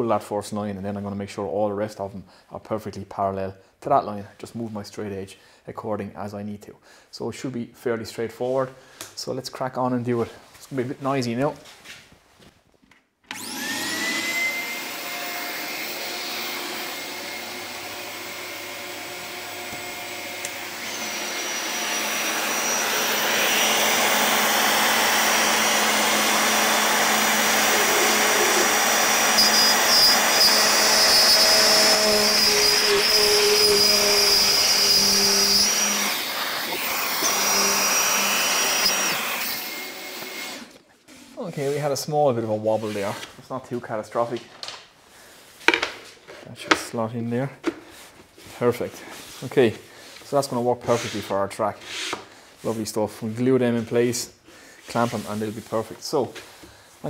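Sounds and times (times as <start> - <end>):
router whining: 13.3 - 40.8.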